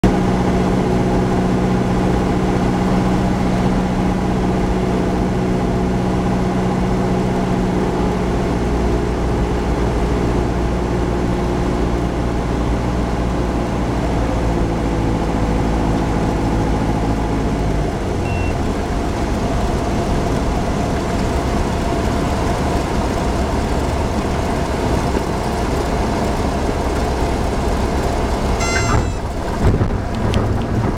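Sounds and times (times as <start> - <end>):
light aircraft engine drone: 0.0 - 30.9
brief high chirps: 28.6 - 29.3.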